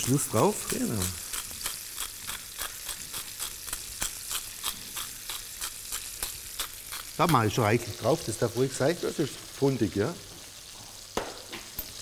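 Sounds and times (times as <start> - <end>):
pepper mill grinding: 0.0 - 8.7
meat sizzling in a pan: 0.0 - 12.0.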